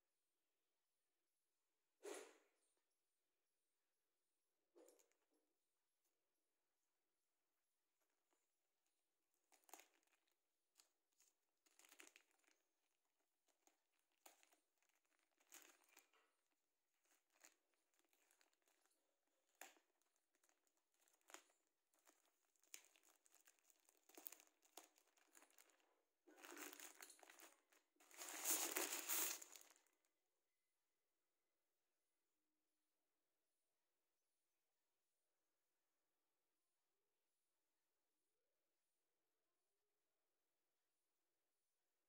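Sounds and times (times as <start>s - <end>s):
plastic bag crinkling: 9.4s - 10.4s, 11.2s - 12.6s, 13.5s - 16.3s, 17.0s - 30.0s.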